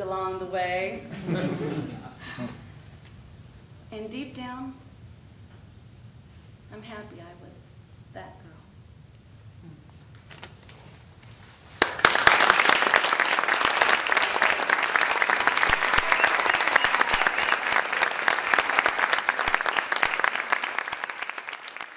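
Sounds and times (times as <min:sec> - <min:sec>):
audience applauding: 0:11.8 - 0:21.9.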